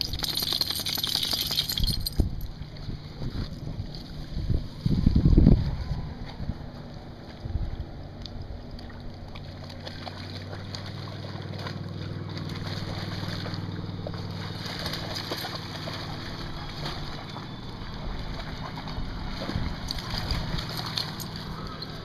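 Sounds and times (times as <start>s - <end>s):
dog splashing through water: 0.0s - 2.2s, 8.6s - 22.0s.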